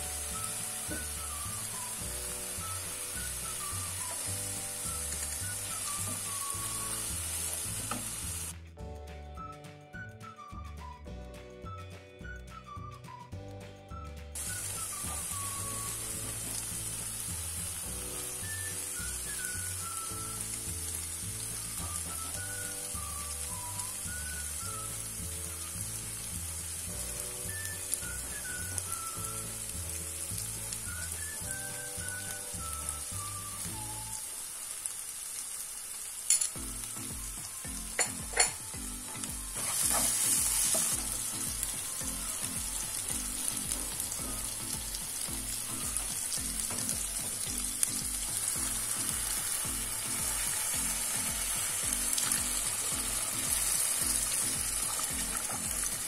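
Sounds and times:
food sizzling in a frying pan: 0:00.0 - 0:08.6, 0:14.4 - 0:56.0
wooden spatula scraping a pan: 0:39.5 - 0:40.9.

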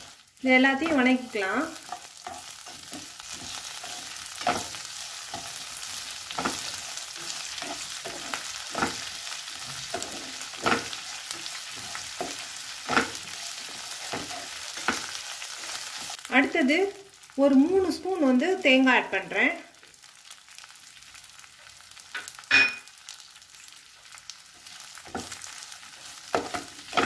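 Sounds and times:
food sizzling in frying pan: 0:00.0 - 0:27.0
spatula scraping pan: 0:00.8 - 0:16.2, 0:24.6 - 0:27.0.

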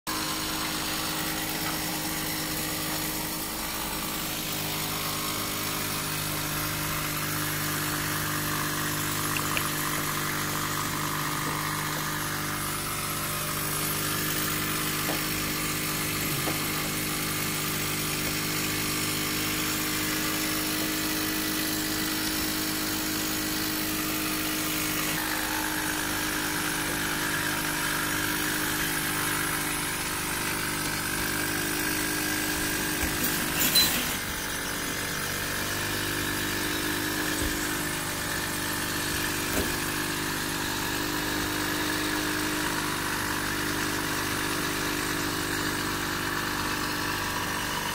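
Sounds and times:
machine hum with hiss: 0:00.1 - 0:47.9.

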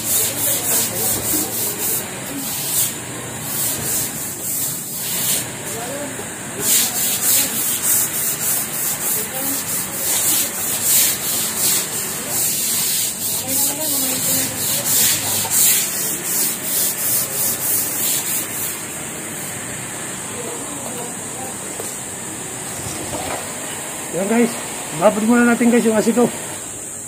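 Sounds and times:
brush scrubbing wet floor tiles: 0:00.0 - 0:05.8, 0:06.6 - 0:19.0.

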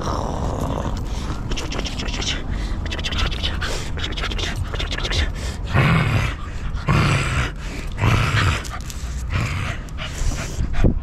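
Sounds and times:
dog play growling and huffing: 0:03.3 - 0:11.0.

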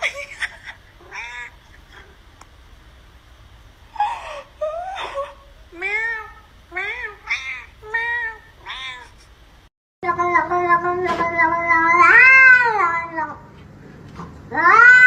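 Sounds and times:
cat meowing: 0:01.0 - 0:01.6, 0:05.8 - 0:09.2, 0:11.6 - 0:13.3, 0:14.5 - 0:15.0.

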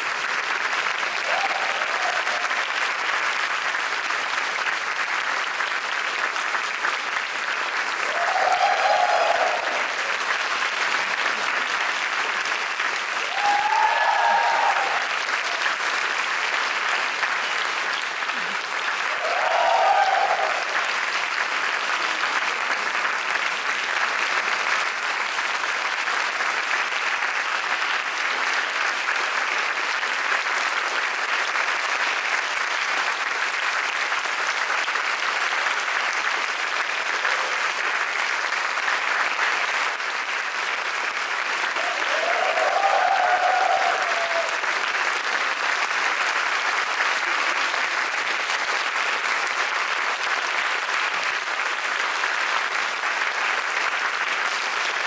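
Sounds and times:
audience applauding: 0:00.0 - 0:55.0
audience cheering: 0:01.0 - 0:02.8, 0:08.0 - 0:10.4, 0:13.0 - 0:16.0, 0:18.3 - 0:21.1, 0:41.5 - 0:45.4.

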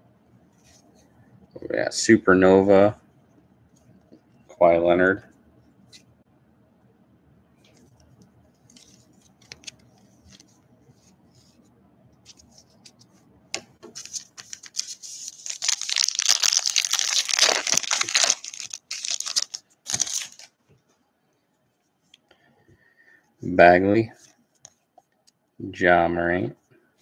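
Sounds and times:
foil wrapper tearing and crinkling: 0:14.1 - 0:20.5.

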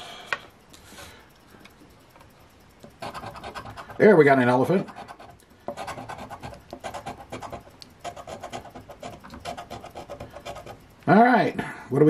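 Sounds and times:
coin scratching lottery ticket: 0:03.0 - 0:10.8.

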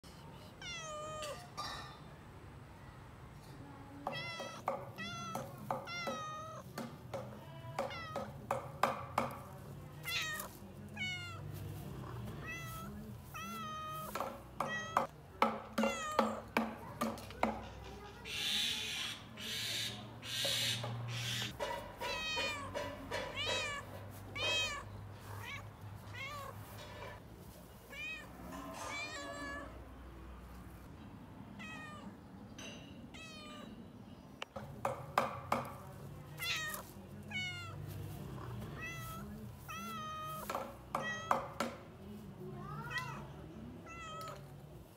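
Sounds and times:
cat meowing: 0:00.6 - 0:01.6, 0:04.1 - 0:06.6, 0:07.5 - 0:08.4, 0:10.0 - 0:11.5, 0:12.4 - 0:15.1, 0:15.8 - 0:16.4, 0:21.2 - 0:26.8, 0:27.9 - 0:29.8, 0:31.6 - 0:32.2, 0:33.1 - 0:33.8, 0:36.3 - 0:37.8, 0:38.8 - 0:41.6, 0:42.6 - 0:44.5.

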